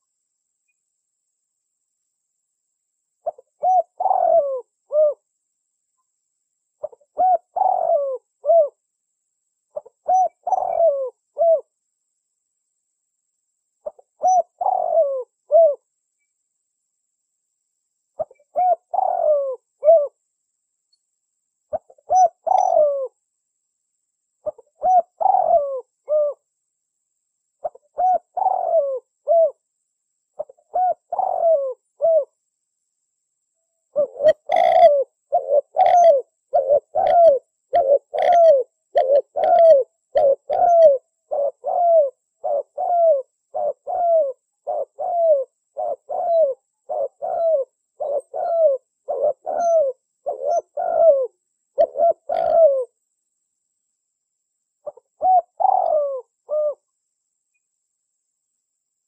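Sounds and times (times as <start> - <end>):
dove cooing: 3.2 - 5.3, 6.8 - 8.8, 9.7 - 11.7, 13.8 - 15.8, 18.2 - 20.2, 21.7 - 23.2, 24.4 - 26.4, 27.6 - 29.6, 30.4 - 32.4, 33.9 - 53.0, 54.8 - 56.9.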